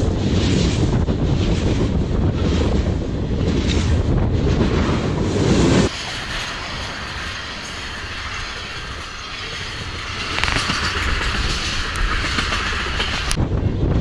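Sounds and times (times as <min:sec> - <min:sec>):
freight train wheels rattling: 0:05.9 - 0:13.4.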